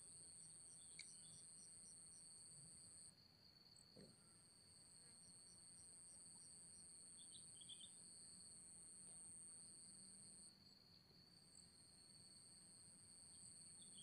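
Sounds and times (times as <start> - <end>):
quick insect chirps: 7.2 - 8.0, 13.3 - 14.0.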